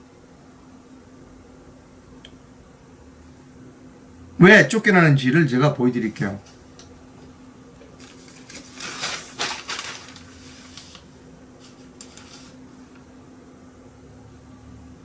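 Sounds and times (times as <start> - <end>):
steady low hum: 0.0 - 15.0
rustling and clattering at desk: 7.8 - 13.1.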